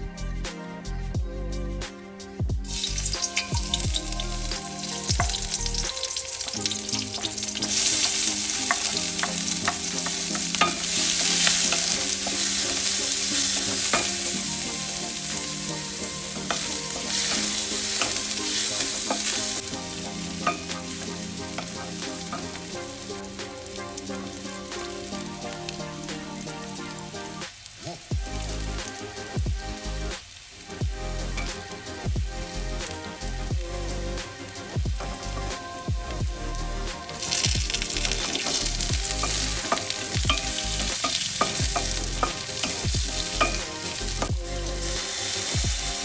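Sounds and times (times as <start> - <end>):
food sizzling in hot oil: 2.6 - 46.0
spatula scraping a wok: 2.7 - 27.3, 34.5 - 44.3.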